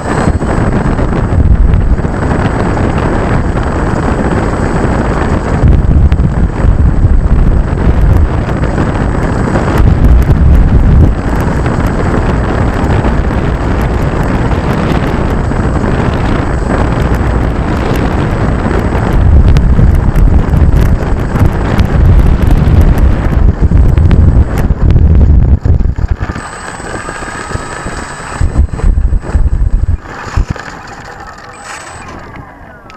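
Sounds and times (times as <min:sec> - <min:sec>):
faint wavering whine: 0:00.0 - 0:03.2, 0:24.7 - 0:32.9
wind buffeting microphone: 0:00.0 - 0:32.9.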